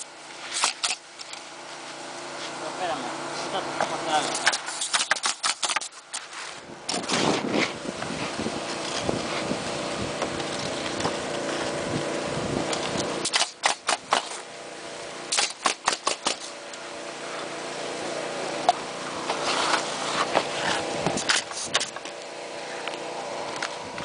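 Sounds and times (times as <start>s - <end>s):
steady hum: 0.0s - 24.0s
nail guns firing: 0.6s - 1.0s, 4.4s - 6.0s, 13.2s - 14.4s, 15.3s - 16.5s.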